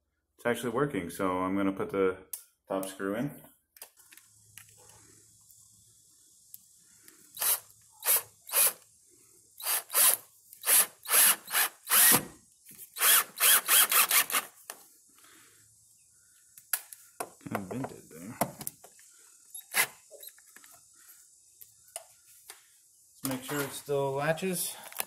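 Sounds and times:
cordless drill driving screw: 7.4s - 8.8s, 9.6s - 12.3s, 13.0s - 14.6s, 19.6s - 20.0s.

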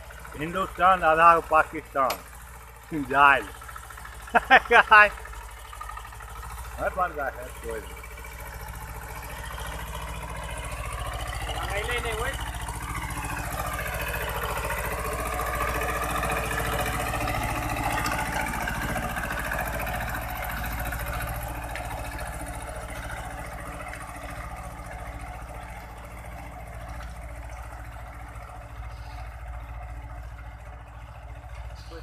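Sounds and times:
diesel tractor engine under load: 0.0s - 32.0s.

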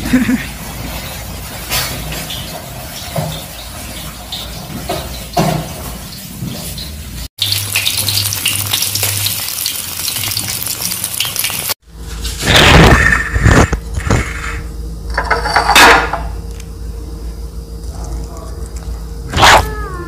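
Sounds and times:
fish sizzling in hot oil: 0.7s - 11.8s.

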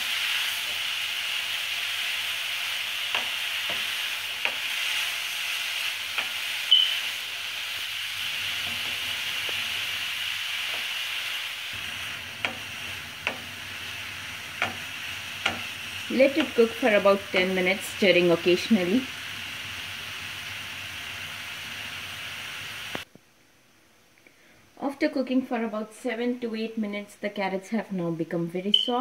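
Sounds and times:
carrots sizzling in a frying pan: 0.0s - 23.1s
spatula tapping and scraping pan: 3.0s - 4.7s, 6.1s - 6.8s, 12.4s - 13.6s, 14.4s - 16.7s.

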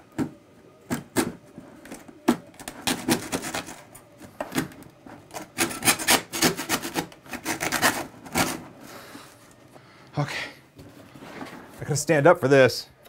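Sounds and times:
bread knife sawing plastic: 5.3s - 8.6s.

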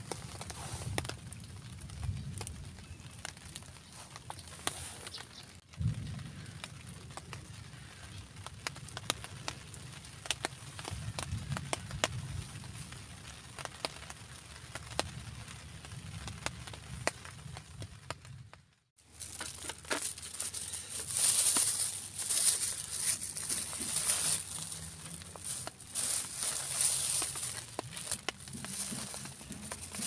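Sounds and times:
raindrops tapping: 0.0s - 30.0s
steady low rumble: 20.1s - 30.0s.

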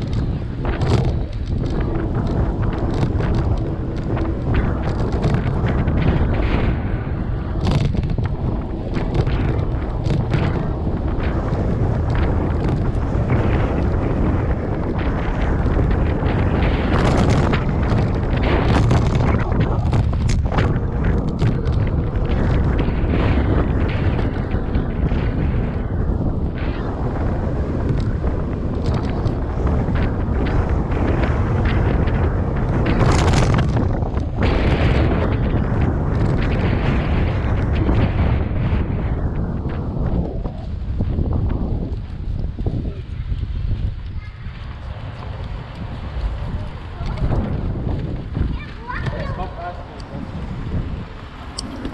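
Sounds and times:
small rattles and knocks: 0.0s - 6.6s, 7.6s - 25.9s
bicycle knocks and rattles: 0.0s - 51.9s
wind buffeting microphone: 0.0s - 51.9s.

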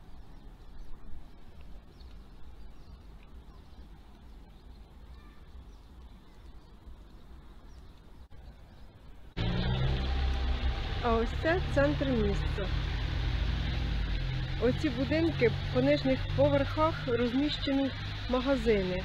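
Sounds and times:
low outdoor rumble: 0.0s - 19.0s
faint short bird calls: 5.0s - 6.6s.

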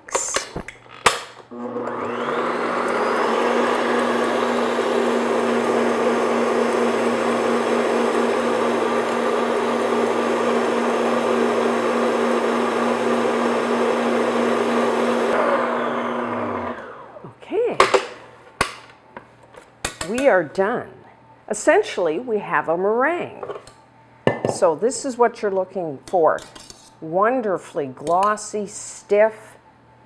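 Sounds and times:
stand mixer motor whir: 1.5s - 17.2s.

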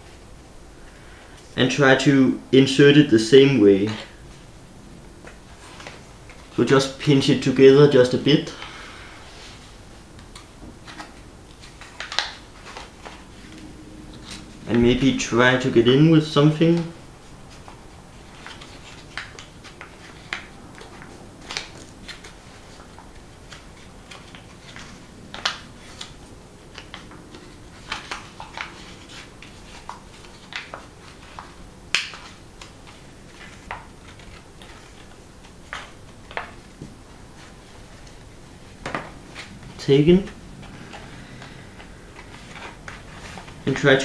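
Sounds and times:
paper crinkling and clicking: 10.2s - 13.6s, 17.5s - 38.2s.

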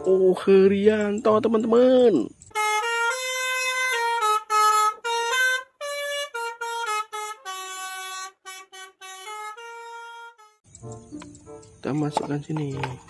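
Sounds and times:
multi-tone musical bus horn: 2.5s - 10.6s.

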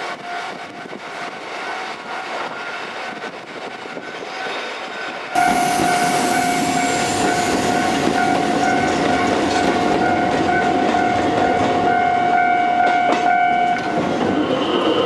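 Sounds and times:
train wheels clattering on rails: 0.0s - 15.0s
level crossing alarm ringing: 5.4s - 14.0s.

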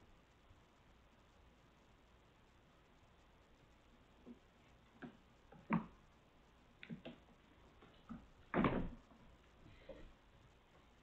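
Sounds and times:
loud thump: 8.5s - 9.0s.

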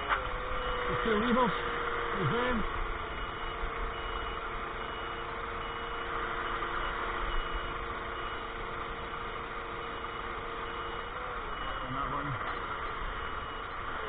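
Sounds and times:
hydraulics humming: 0.0s - 14.0s
lorry diesel engine running: 0.0s - 14.0s
warning beeper: 2.2s - 8.6s, 9.2s - 12.5s, 13.1s - 13.8s.

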